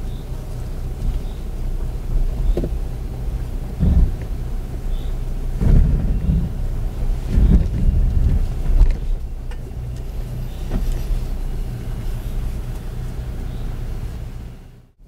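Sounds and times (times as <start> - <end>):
car body and suspension rumble: 0.0 - 15.0
car engine hum: 0.0 - 15.0
sharp knocks from rough ground: 2.4 - 2.8, 3.8 - 4.4, 5.6 - 6.6, 7.3 - 9.6.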